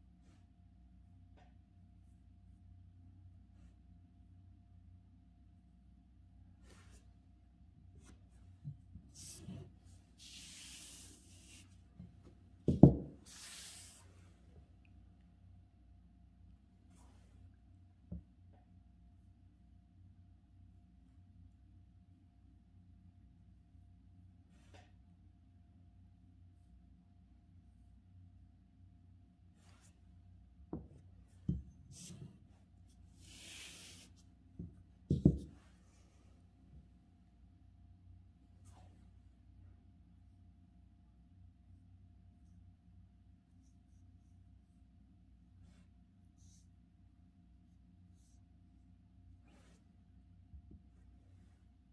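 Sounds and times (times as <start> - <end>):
ink brush stroke on paper: 9.1 - 11.8, 13.2 - 14.3, 29.6 - 30.0, 30.8 - 34.3, 45.6 - 46.7, 48.1 - 48.5, 49.4 - 49.9
hand thumping on table: 12.7 - 13.2, 34.6 - 35.6.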